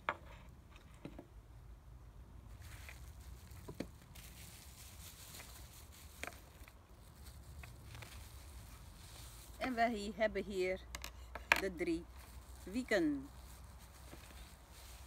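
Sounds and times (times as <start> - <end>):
plastic bags rustling: 2.6 - 10.0, 12.1 - 15.0.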